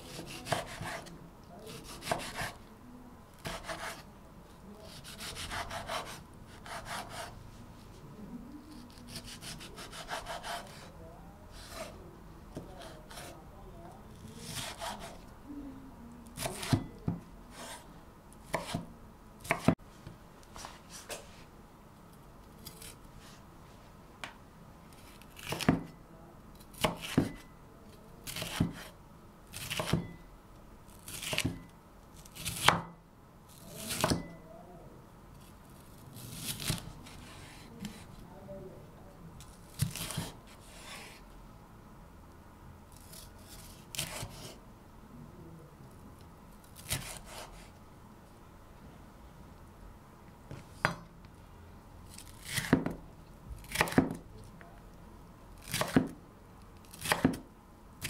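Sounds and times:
knife chopping on wooden board: 0:00.2 - 0:01.1, 0:01.8 - 0:02.6, 0:03.4 - 0:04.0, 0:05.0 - 0:07.3, 0:09.1 - 0:10.9, 0:14.4 - 0:15.2, 0:16.4 - 0:17.8, 0:18.5 - 0:18.9, 0:19.5 - 0:19.8, 0:25.4 - 0:25.9, 0:26.8 - 0:27.4, 0:28.3 - 0:28.9, 0:29.6 - 0:30.2, 0:31.1 - 0:31.7, 0:32.4 - 0:32.9, 0:33.9 - 0:34.4, 0:39.8 - 0:41.2, 0:44.0 - 0:44.6, 0:46.9 - 0:47.7, 0:52.4 - 0:53.0, 0:53.7 - 0:54.2, 0:55.6 - 0:56.2, 0:57.0 - 0:57.4.

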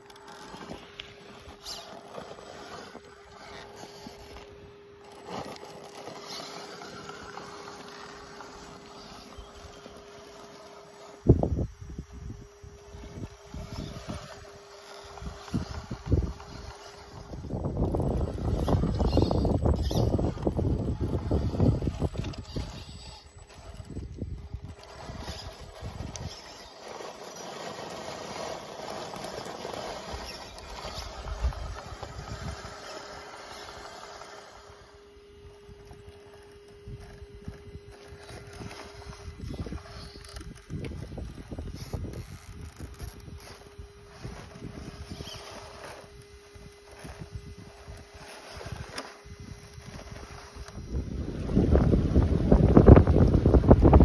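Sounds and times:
tyres scraping on stone: 0:00.0 - 0:11.3, 0:13.1 - 0:34.7
electric motor whine: 0:00.0 - 0:54.0.

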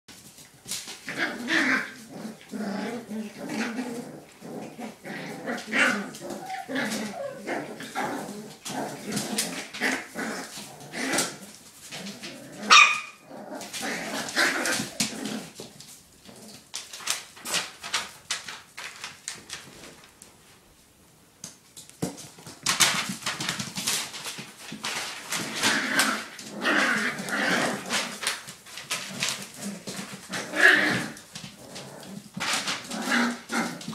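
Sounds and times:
puppies scuffling on newspaper: 0:00.1 - 0:20.8, 0:21.7 - 0:33.9
puppies yapping: 0:12.7 - 0:13.2
puppy yelping: 0:12.7 - 0:13.2.

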